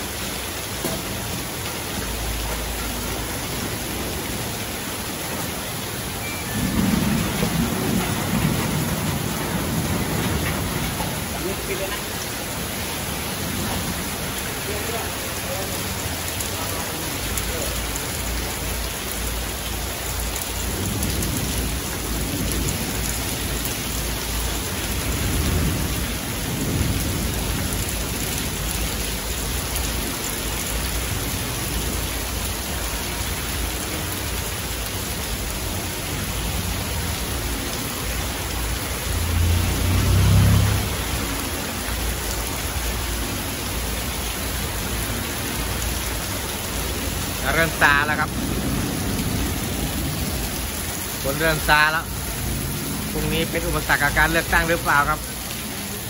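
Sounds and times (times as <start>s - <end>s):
heavy rain: 0.0s - 56.0s
thunder rumbling: 6.0s - 14.7s, 20.4s - 29.8s, 45.7s - 55.3s.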